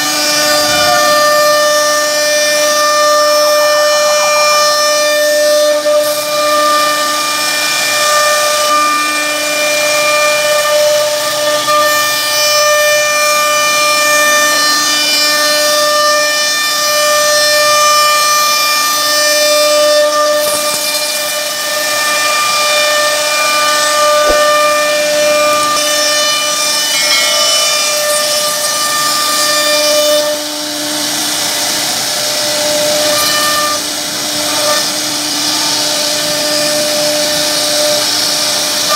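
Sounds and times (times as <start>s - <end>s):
bit cutting into wood: 0.0s - 3.6s, 18.0s - 30.4s
cnc router spindle whining: 0.0s - 38.9s.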